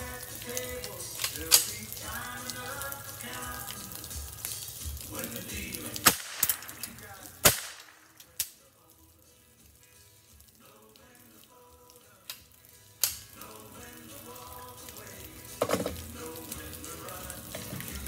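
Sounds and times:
background music: 0.0s - 18.0s
rifle shots: 6.0s - 8.2s.

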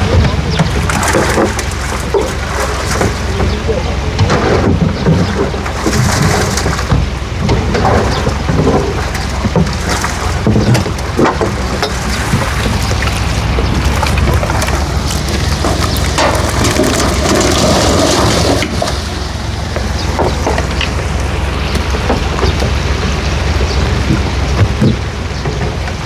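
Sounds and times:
low engine rumble: 0.0s - 26.0s
water gushing and splashing: 0.0s - 26.0s.

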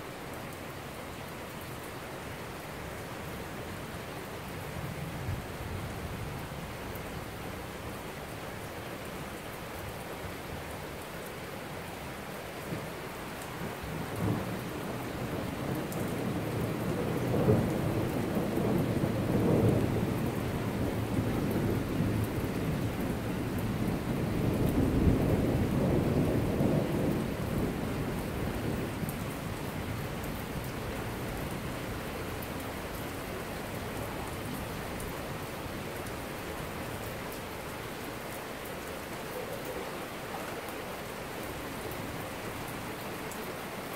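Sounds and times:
steady rain falling: 0.0s - 43.9s
low roll of thunder: 13.6s - 32.1s.

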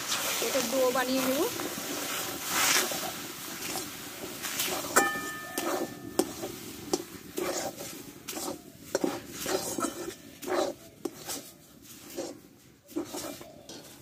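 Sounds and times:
metal spatula scraping pan: 0.0s - 14.0s
pan clanging and ringing: 4.9s - 6.3s.

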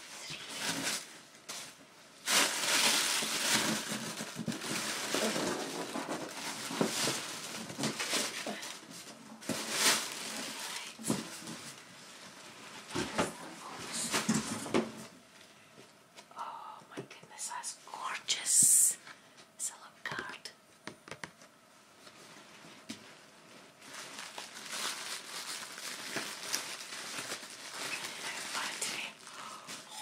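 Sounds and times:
cardboard packing rustling: 0.0s - 15.1s, 22.0s - 30.0s.

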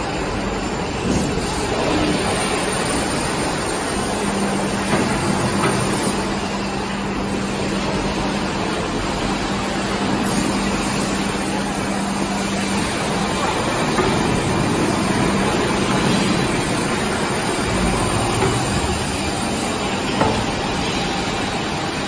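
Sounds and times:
plate bending machine rumble: 0.0s - 22.0s
steady machine hum: 0.0s - 22.0s.

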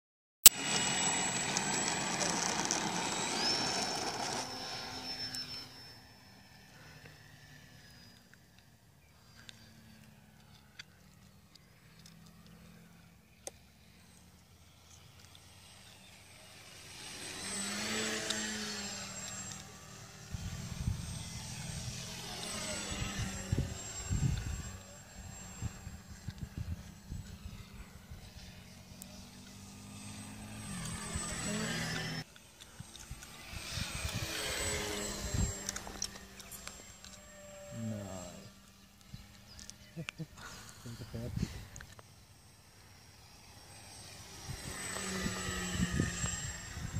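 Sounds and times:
model plane motor whining: 0.5s - 46.9s.

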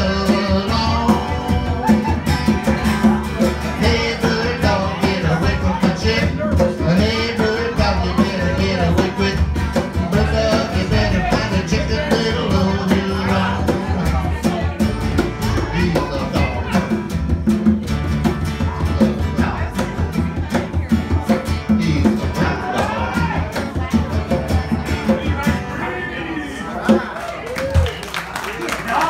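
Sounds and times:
man and woman singing duet: 0.0s - 2.3s, 3.7s - 14.6s
conga drum beat: 0.0s - 25.8s, 26.8s - 27.9s
plucked upright bass: 0.0s - 25.9s
strummed acoustic guitar: 0.0s - 27.2s.

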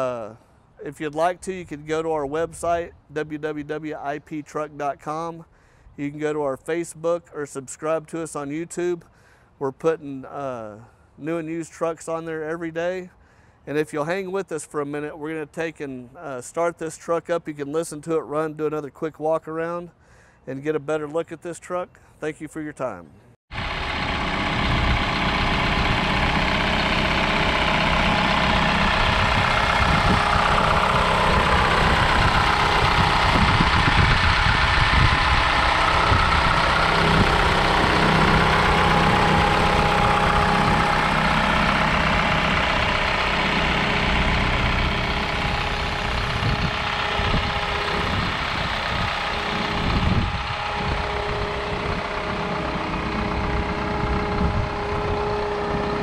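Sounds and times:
diesel truck engine idling: 0.0s - 6.8s, 23.5s - 56.0s.

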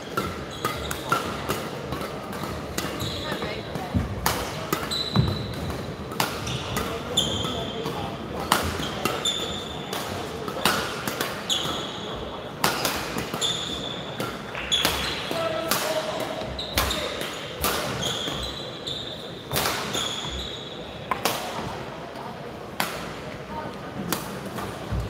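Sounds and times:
racket smacking shuttlecock: 0.1s - 12.0s, 12.6s - 18.4s
shoes squeaking on court: 0.2s - 1.2s, 2.8s - 8.0s, 8.7s - 9.9s, 11.5s - 12.2s, 13.3s - 15.3s, 16.4s - 17.2s, 17.8s - 21.0s.

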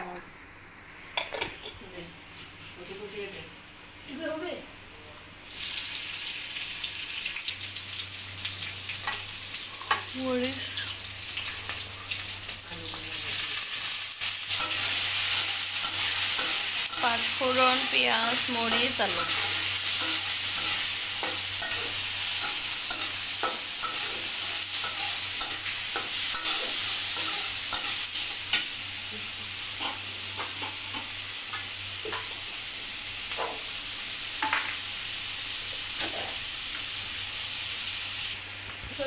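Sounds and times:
vegetables sizzling in hot oil: 5.4s - 39.0s
metal spatula scraping a pan: 13.3s - 28.4s.

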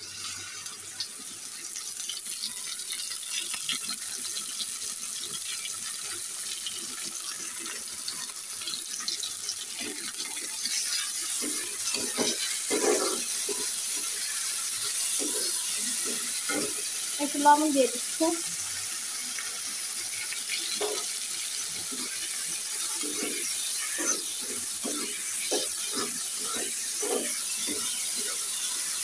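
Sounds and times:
shrimp sizzling in hot oil: 0.0s - 29.0s
metal spatula scraping a pan: 9.8s - 17.0s, 20.5s - 29.0s.

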